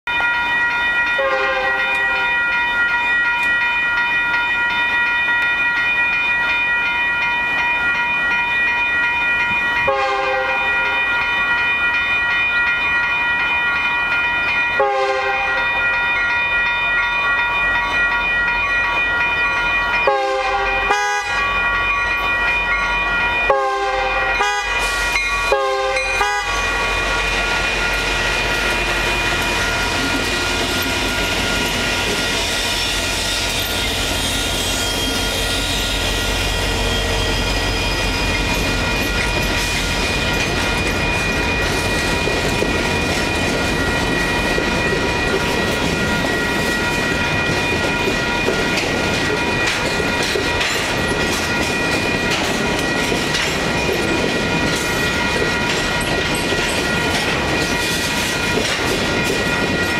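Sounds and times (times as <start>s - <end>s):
crossing bell ringing: 0.0s - 59.9s
locomotive horn blasts: 1.2s - 2.3s, 9.9s - 10.7s, 14.8s - 15.6s, 20.1s - 21.4s, 23.5s - 24.8s, 25.5s - 26.6s.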